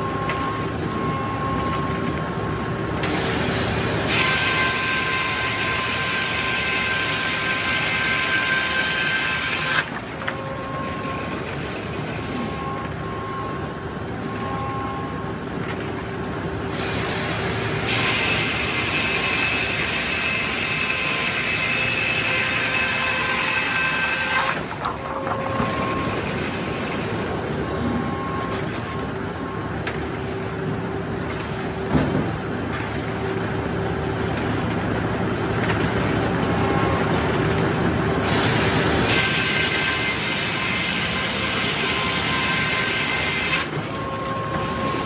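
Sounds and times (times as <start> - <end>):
saw and carriage running: 3.0 - 12.6, 16.7 - 28.2, 35.6 - 45.0.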